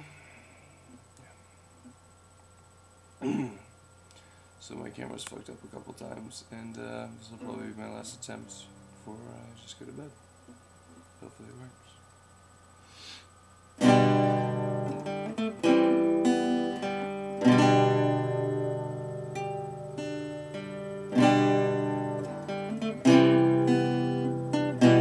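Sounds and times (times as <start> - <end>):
acoustic guitar strumming: 13.8 - 25.0.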